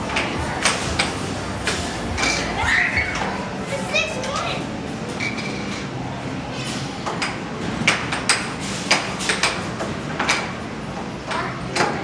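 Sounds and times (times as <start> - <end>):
air hockey puck clacks: 7.1 - 10.6.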